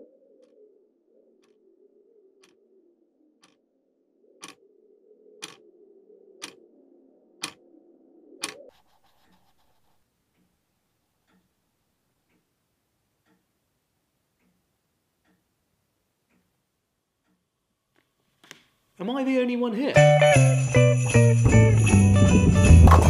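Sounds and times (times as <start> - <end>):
clock ticking: 2.4 - 2.6, 3.4 - 3.6, 4.4 - 4.6, 5.4 - 5.6, 6.4 - 6.6, 10.3 - 16.6, 17.2 - 17.5.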